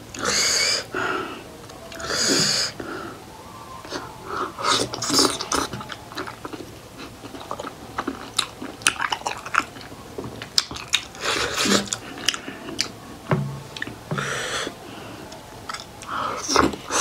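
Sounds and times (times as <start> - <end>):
wet chewing mouth clicks: 4.8 - 13.0.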